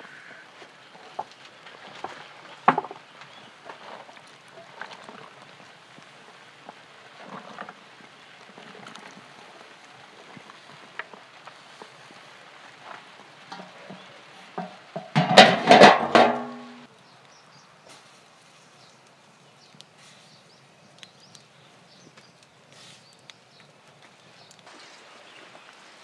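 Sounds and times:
broth bubbling in pot: 0.7 - 15.0
clattering splash: 14.6 - 16.9.

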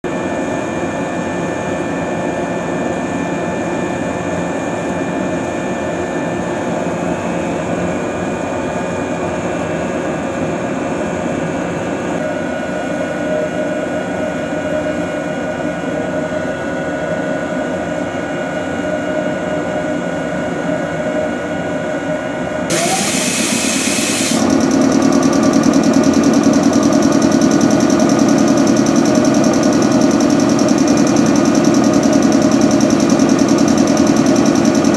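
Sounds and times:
hissing air burst: 22.7 - 24.4
air compressor running: 22.7 - 34.9
electrical hum: 22.7 - 34.9.

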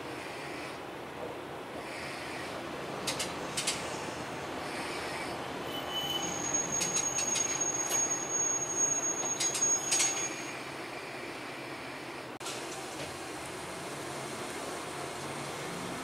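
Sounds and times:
train running hum: 0.0 - 5.8
train wheel squeal: 5.0 - 10.7.

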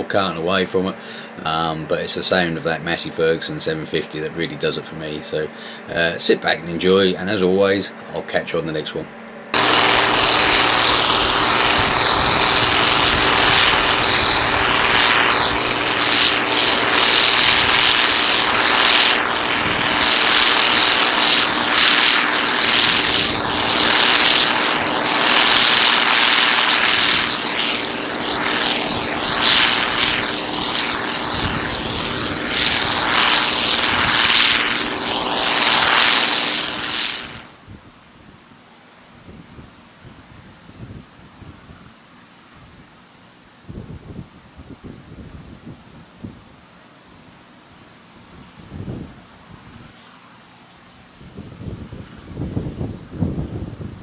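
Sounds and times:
combine harvester engine drone: 0.0 - 37.6
threshing machinery rushing: 9.6 - 37.5.

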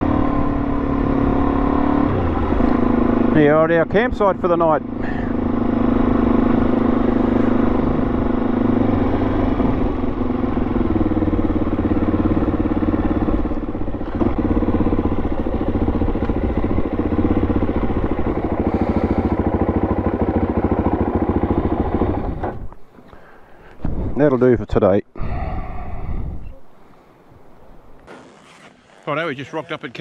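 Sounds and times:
motorcycle engine running: 0.0 - 22.8.

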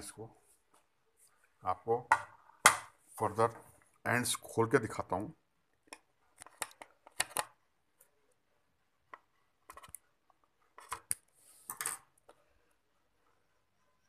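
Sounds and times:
clicks and taps: 5.7 - 8.1.

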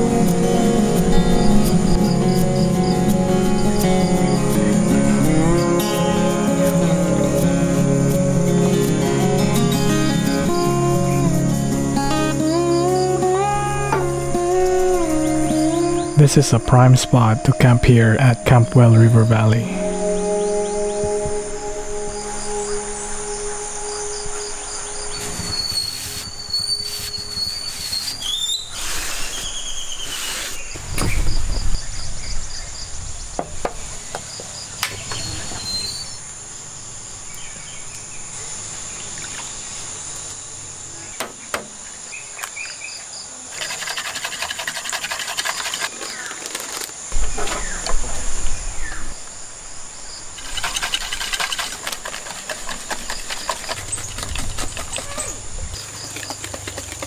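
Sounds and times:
crickets buzzing: 0.0 - 57.0
bird chirps: 12.0 - 32.9, 34.2 - 36.3
whisk beating batter in bowl: 43.6 - 46.0, 50.4 - 54.8.

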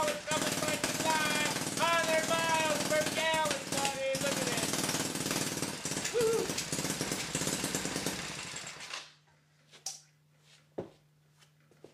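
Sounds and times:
small petrol engine running: 0.0 - 9.2.

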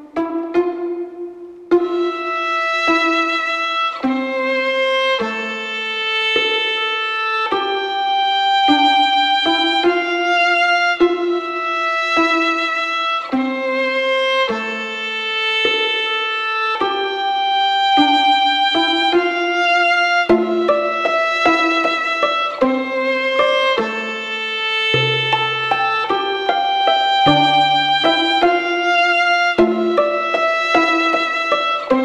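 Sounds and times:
melody of held notes: 17.2 - 32.0.

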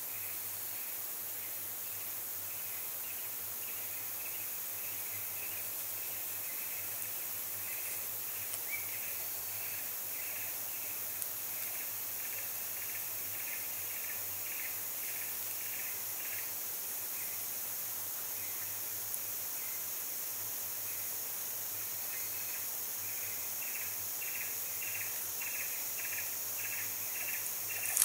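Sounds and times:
faint ticks: 7.7 - 10.5, 11.1 - 13.6, 24.8 - 28.0
high-pitched insect drone: 18.4 - 28.0.

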